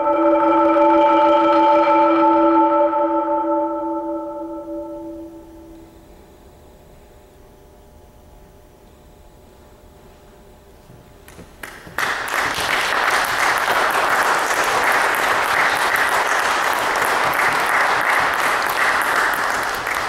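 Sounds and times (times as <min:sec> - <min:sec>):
marimba chord: 0:00.0 - 0:05.9
audience applauding: 0:11.6 - 0:20.0.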